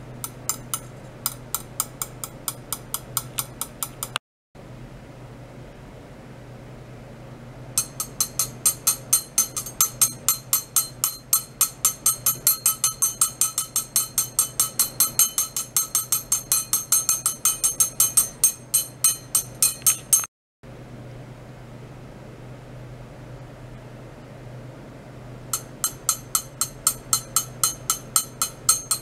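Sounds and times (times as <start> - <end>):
steady low hum: 0.0 - 29.0
sharp ringing metallic ticks: 7.8 - 20.3, 25.6 - 29.0.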